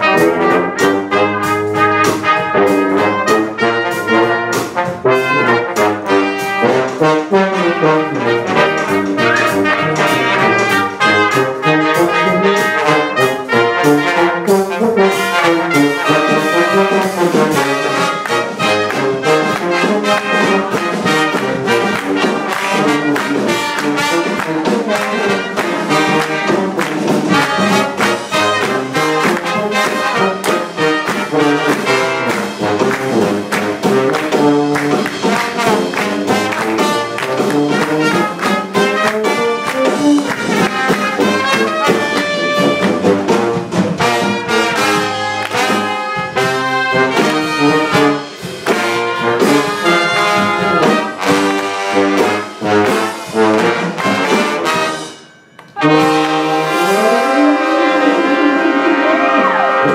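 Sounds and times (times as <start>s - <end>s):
brass group playing: 0.0s - 59.9s
drum kit beat: 0.0s - 59.9s.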